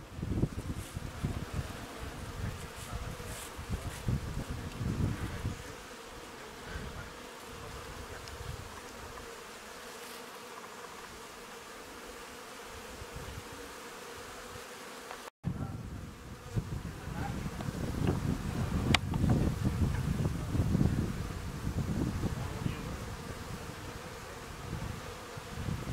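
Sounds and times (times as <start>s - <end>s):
wind rumble on microphone: 0.0s - 5.8s, 6.6s - 9.2s, 12.8s - 13.6s, 15.4s - 25.9s
honeybees buzzing: 0.0s - 25.9s.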